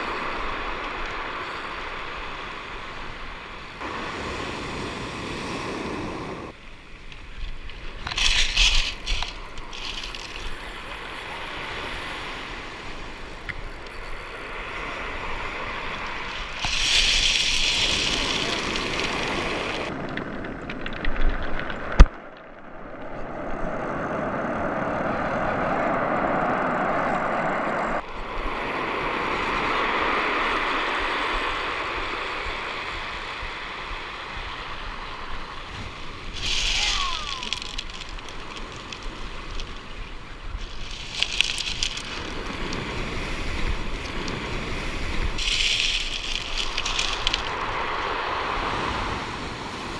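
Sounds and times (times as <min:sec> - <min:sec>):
surf breaking on pebble beach: 0:00.0 - 0:06.6, 0:07.2 - 0:22.0, 0:28.2 - 0:49.9
wind buffeting microphone: 0:31.1 - 0:49.9.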